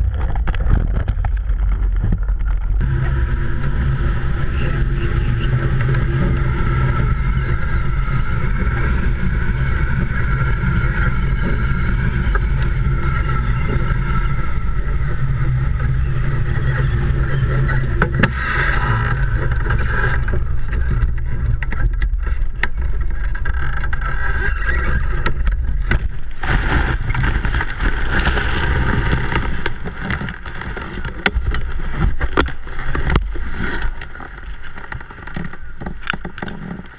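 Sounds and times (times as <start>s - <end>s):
wind rushing over microphone: 0.0s - 36.2s
grass brushing against frame: 26.0s - 32.1s.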